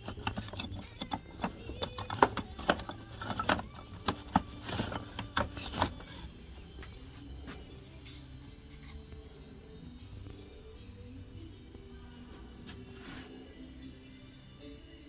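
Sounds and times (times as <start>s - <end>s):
wooden parts clacking together: 0.0s - 7.0s.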